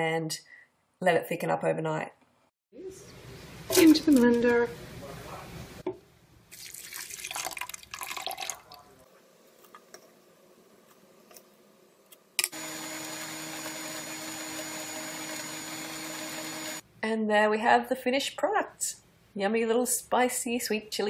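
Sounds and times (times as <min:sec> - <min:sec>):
liquid splashing into blender jar: 0:06.5 - 0:08.8
blender whirring: 0:12.5 - 0:16.8.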